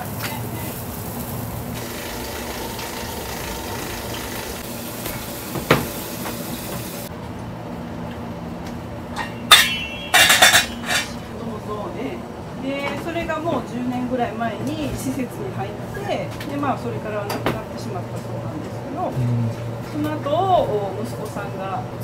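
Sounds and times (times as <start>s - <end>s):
steady kitchen hiss: 0.0s - 7.1s
pot lid clanking: 9.2s - 11.2s.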